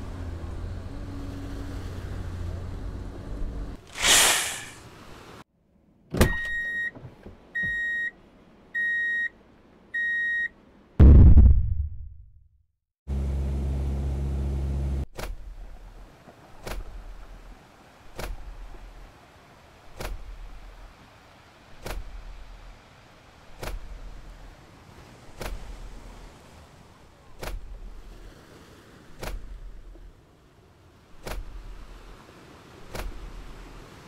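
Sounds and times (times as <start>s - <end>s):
falling whoosh: 3.8s - 4.9s
low steady hum: 11.0s - 12.4s
loud low boom: 11.0s - 12.5s.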